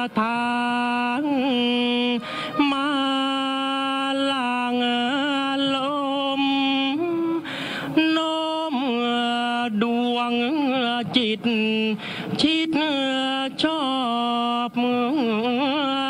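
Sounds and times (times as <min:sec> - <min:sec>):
person chanting long held notes: 0:00.0 - 0:10.7.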